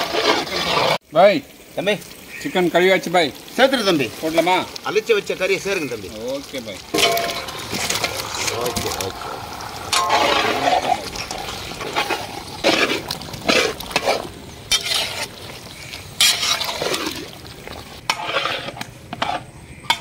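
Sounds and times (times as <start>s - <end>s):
low frying sizzle: 0.0s - 20.0s
wooden paddle stirring paste: 10.0s - 20.0s
scrapes and knocks against pan: 11.8s - 15.3s, 18.0s - 20.0s.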